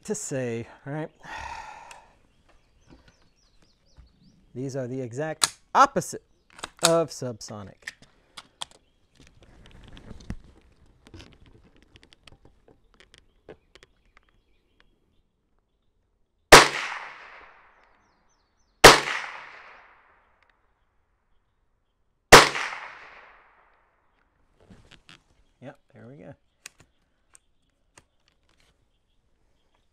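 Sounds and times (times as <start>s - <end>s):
rifle shots with echo: 16.5s - 17.7s, 18.8s - 20.1s, 22.3s - 23.6s
faint handling clicks: 26.6s - 28.9s.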